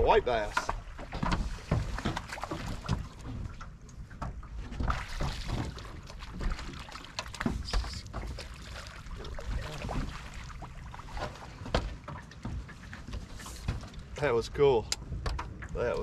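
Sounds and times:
waves slapping against boat hull: 0.0 - 16.0
wind: 0.0 - 16.0
knocks and thuds: 11.6 - 12.8.

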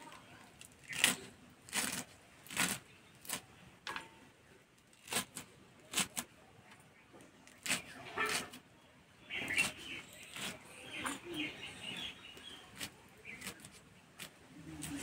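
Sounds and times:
knife slicing spinach: 0.8 - 3.4, 7.4 - 8.6, 9.5 - 10.6, 12.5 - 15.0.

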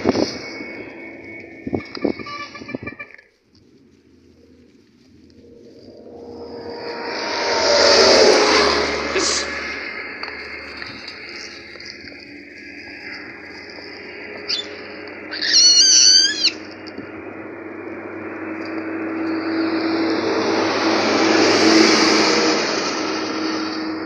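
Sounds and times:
vehicle passing: 4.4 - 15.4, 16.4 - 24.0
baboon squealing: 14.5 - 16.6.

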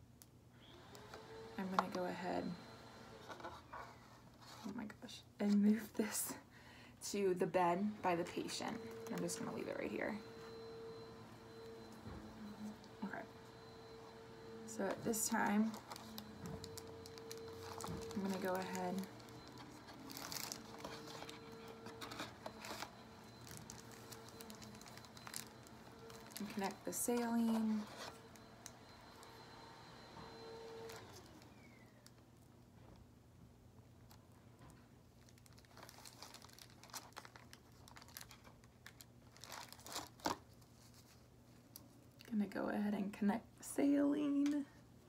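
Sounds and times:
plastic packaging crinkling: 14.9 - 28.5, 35.1 - 41.8.

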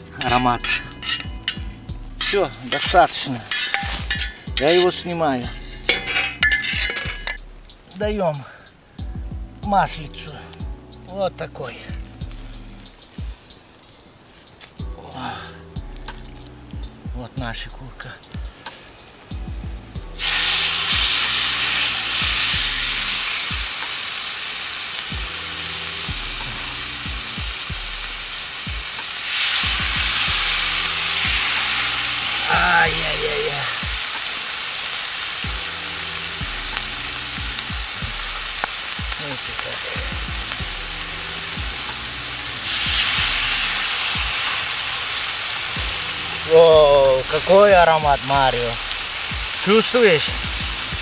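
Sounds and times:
chicken sizzling in hot oil: 0.2 - 8.0, 18.5 - 51.0.

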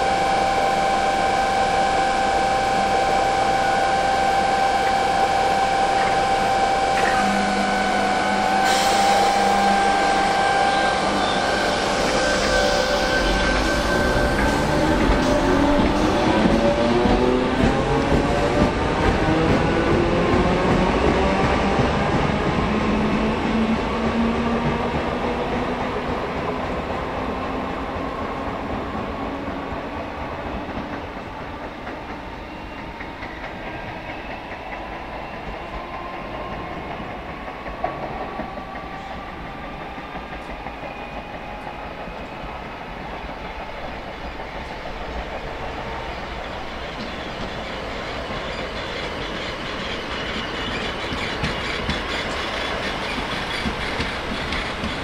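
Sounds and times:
train wheels clattering over rail joints: 48.4 - 55.0.

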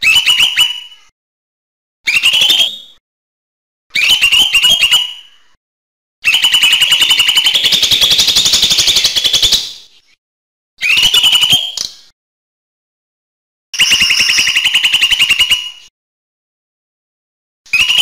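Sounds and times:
bird chattering song: 6.3 - 10.2, 13.8 - 15.9.

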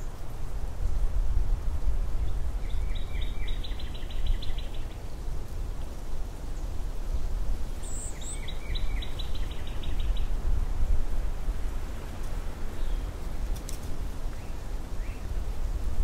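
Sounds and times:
wind blowing with low rumble: 0.0 - 16.0
songbird trilling: 7.8 - 10.3.

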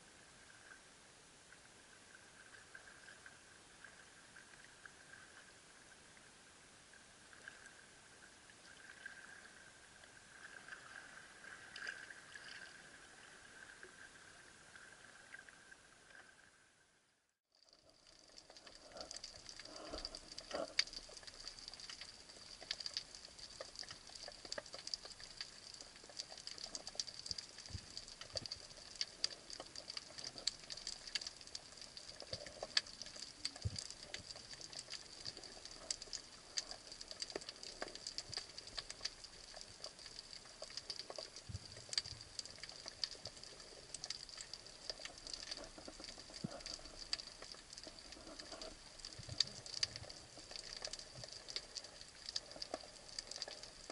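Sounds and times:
underwater crackle of clicks: 10.0 - 12.8, 17.5 - 53.9.

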